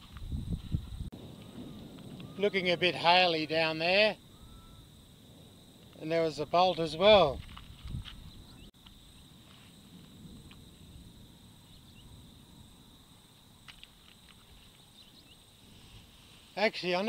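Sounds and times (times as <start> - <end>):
low wind rumble: 0.0 - 17.0.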